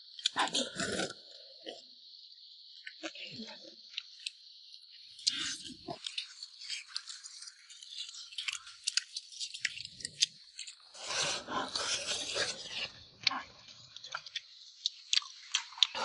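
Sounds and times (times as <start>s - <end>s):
rustling and chewing: 5.2s - 16.0s.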